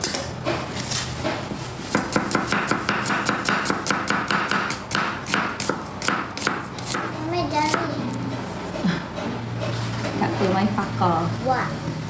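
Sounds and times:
knife chopping on cutting board: 0:01.2 - 0:07.1, 0:07.7 - 0:07.9.

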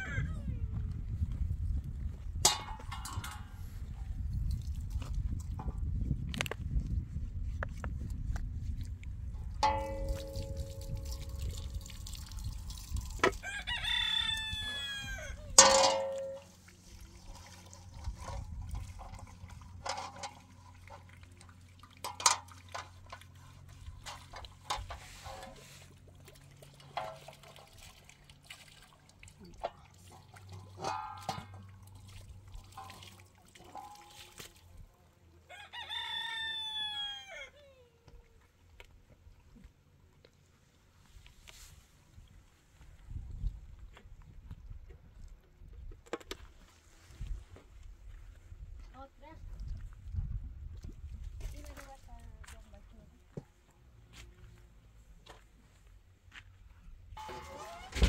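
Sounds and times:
rooster crowing: 0:00.0 - 0:00.5, 0:13.4 - 0:15.4, 0:35.5 - 0:37.6.

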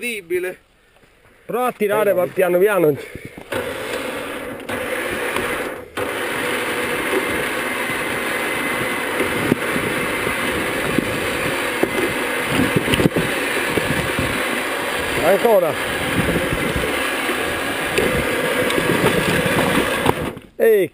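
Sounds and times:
vehicle engine running: 0:03.4 - 0:20.4
winch motor drone: 0:03.4 - 0:20.4.

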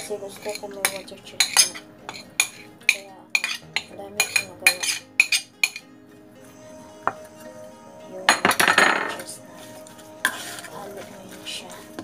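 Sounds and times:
metal spoon clinking on plate: 0:00.4 - 0:05.8.

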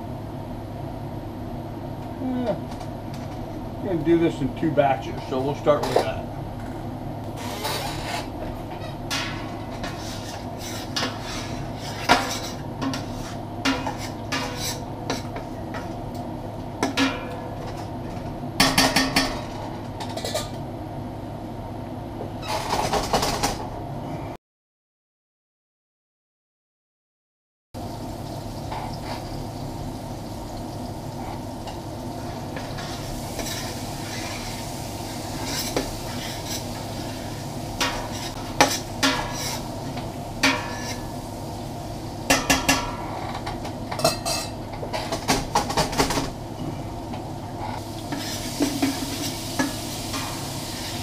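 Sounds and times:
meat sizzling in hot oil: 0:27.8 - 0:42.8, 0:47.8 - 0:51.0.

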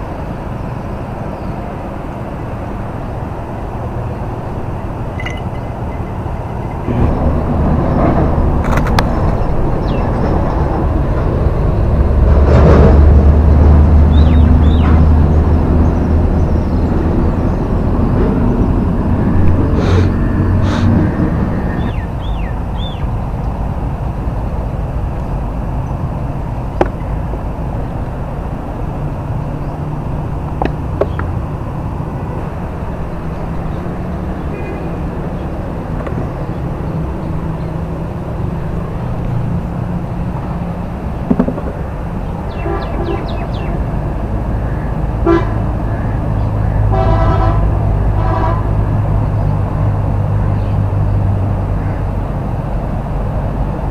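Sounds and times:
motor engine rumbling: 0:00.0 - 0:53.9
bird chirps: 0:14.1 - 0:15.0, 0:21.8 - 0:23.1, 0:42.5 - 0:43.8.

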